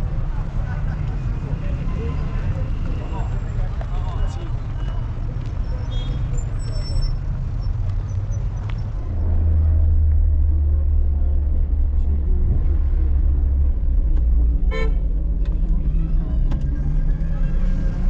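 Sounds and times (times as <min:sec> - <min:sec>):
motor vehicle rumbling: 0:00.0 - 0:18.0.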